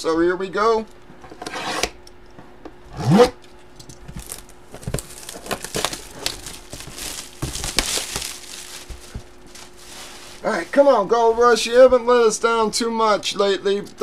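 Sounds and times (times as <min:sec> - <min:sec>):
plastic shrink wrap tearing: 0:04.1 - 0:10.8.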